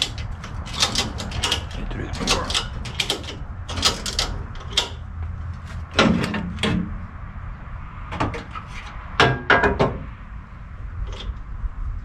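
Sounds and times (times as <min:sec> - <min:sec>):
metal tools clunking and clicking: 0:00.0 - 0:05.0.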